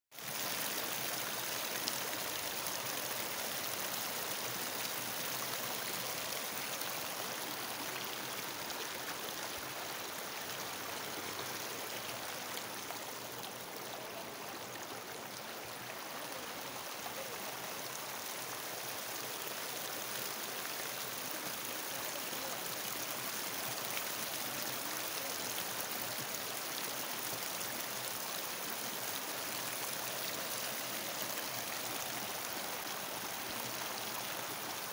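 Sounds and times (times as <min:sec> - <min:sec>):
floodwater rushing: 0:00.1 - 0:34.9.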